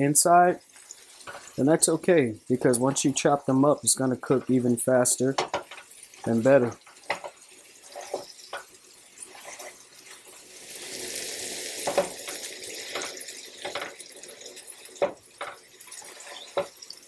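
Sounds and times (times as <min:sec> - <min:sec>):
meat sizzling: 0:00.0 - 0:17.0
spatula scraping griddle: 0:00.7 - 0:14.0, 0:15.0 - 0:16.9
blade knocking against pan: 0:05.4 - 0:05.9.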